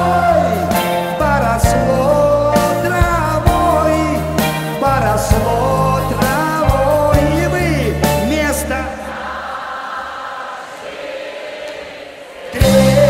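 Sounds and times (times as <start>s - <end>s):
band playing pop song: 0.0s - 9.1s, 12.5s - 13.0s
person singing: 0.0s - 9.2s, 12.4s - 13.0s.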